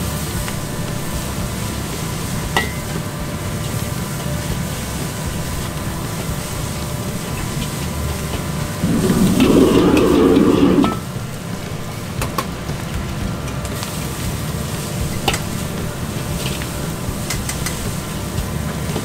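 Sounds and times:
gas burner rushing: 0.0s - 19.0s
noodles sizzling: 0.0s - 19.0s.

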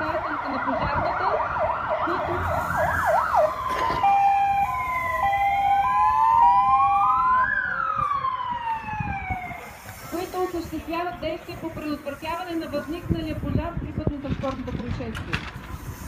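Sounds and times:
two-tone hi-lo siren: 0.0s - 9.8s
wailing siren: 0.0s - 9.8s
fast yelping siren: 0.1s - 9.6s.

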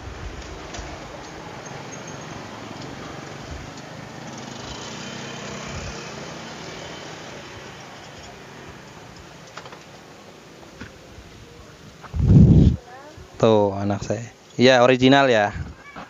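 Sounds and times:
vehicle passing: 0.0s - 9.4s.

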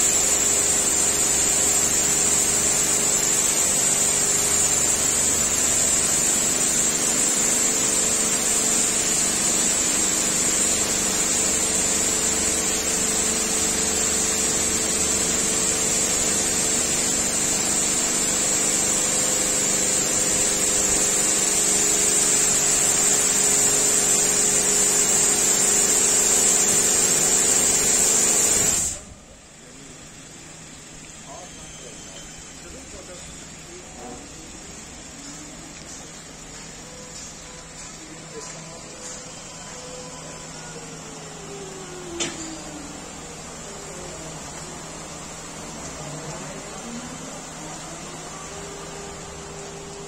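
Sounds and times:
high-pressure water spray hissing: 0.0s - 29.0s
pump humming: 0.0s - 50.0s.

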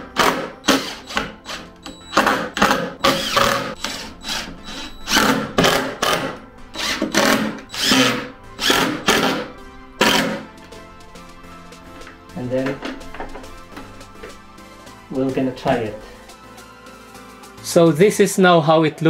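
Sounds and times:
background music: 0.0s - 19.0s
cordless drill driving screws: 0.2s - 10.4s.

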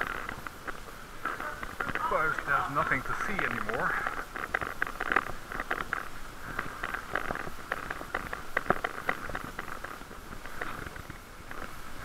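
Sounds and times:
bicycle clicks and rattles: 0.0s - 12.0s
steady hiss: 0.0s - 12.0s.

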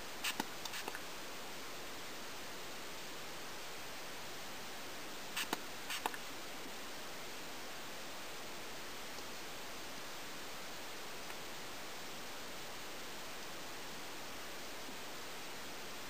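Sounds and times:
steady background hiss: 0.0s - 16.0s
spray bottle spritzes: 0.2s - 1.0s, 5.4s - 6.2s.

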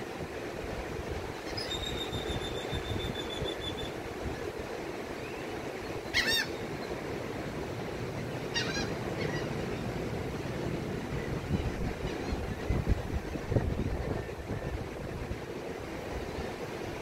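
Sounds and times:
bird calling: 5.2s - 6.8s, 8.5s - 9.8s.

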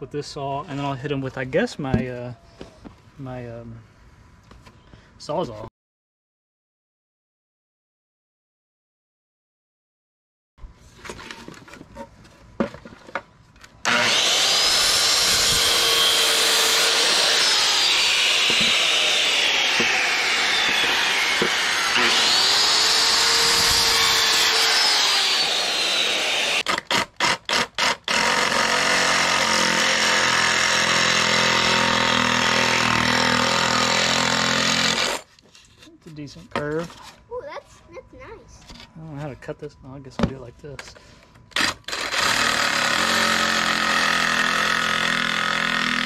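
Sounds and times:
reciprocating saw running: 13.8s - 26.7s
circular saw cutting wood: 13.8s - 35.3s, 41.6s - 46.0s.

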